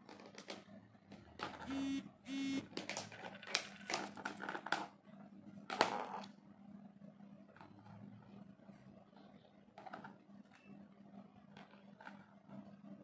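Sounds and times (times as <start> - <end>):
short steady tones: 1.7 - 2.6.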